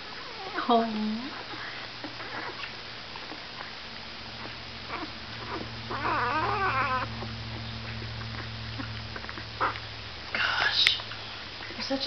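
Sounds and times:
puppy squealing: 0:00.0 - 0:03.8, 0:04.4 - 0:09.8
puppy suckling at a bottle: 0:01.3 - 0:03.8.

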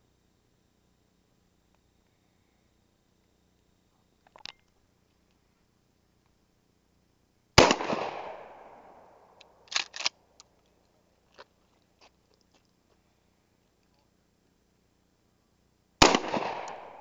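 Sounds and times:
shotgun shot echoing: 0:07.6 - 0:10.1, 0:16.0 - 0:17.0
shotgun slide racking clacks: 0:09.7 - 0:10.2.

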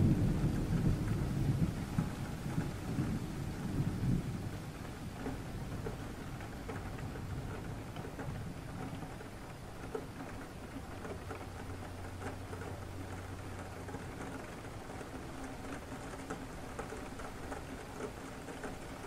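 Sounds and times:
raindrops pattering: 0:00.0 - 0:19.0
steady rain: 0:00.0 - 0:19.0.

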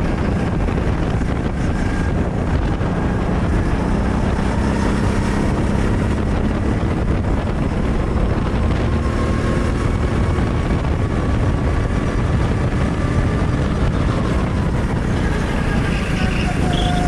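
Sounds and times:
go-kart engine running hard: 0:00.0 - 0:17.0.

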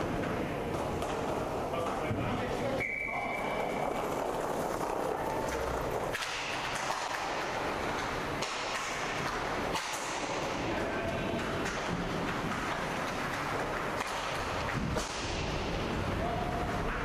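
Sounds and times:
skates rushing on rink: 0:00.0 - 0:17.0
stick hitting puck: 0:03.5 - 0:15.8.

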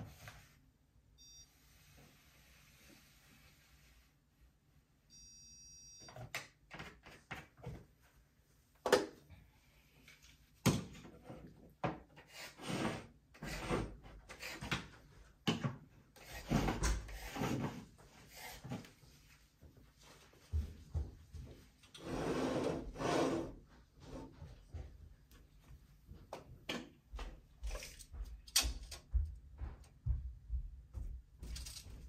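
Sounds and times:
short electronic beep: 0:01.2 - 0:01.5, 0:05.1 - 0:06.1
objects knocking and clattering: 0:27.6 - 0:32.0.

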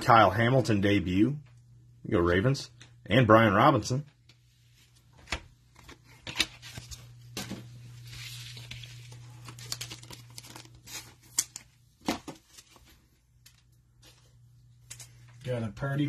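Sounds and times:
low steady hum: 0:00.0 - 0:16.0
cards clicking and snapping: 0:09.6 - 0:12.3.

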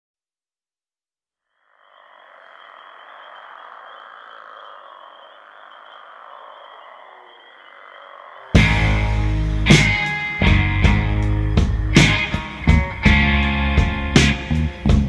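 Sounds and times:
high trilling animal chorus: 0:01.6 - 0:13.8.

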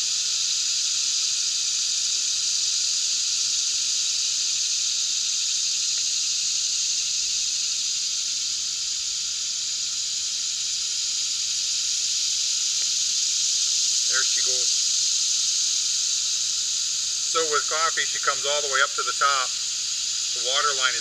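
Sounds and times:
gas burner hissing: 0:14.0 - 0:21.0.

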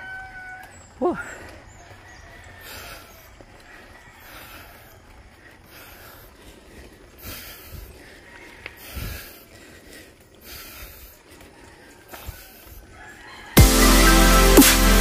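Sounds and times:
cyclist breathing hard: 0:00.1 - 0:13.6.

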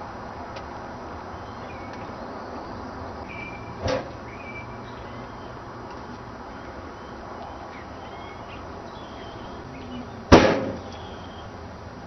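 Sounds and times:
smoke cannon bang: 0:10.3 - 0:10.8.

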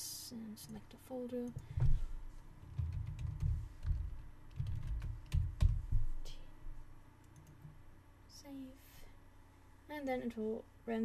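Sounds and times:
typing on computer keyboard: 0:02.6 - 0:05.8.

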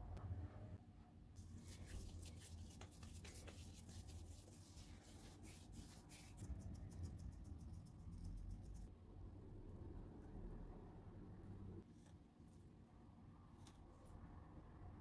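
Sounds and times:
hands rubbing dough on a mat: 0:01.4 - 0:08.9.

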